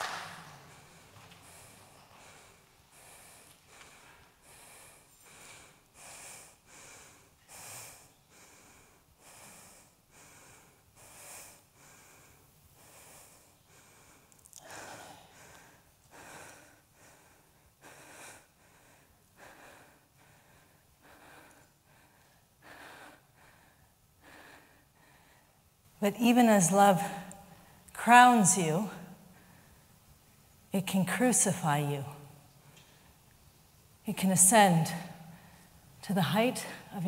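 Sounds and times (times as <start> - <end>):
woman breathing heavily: 0.0 - 25.8, 28.9 - 30.0, 34.6 - 37.0.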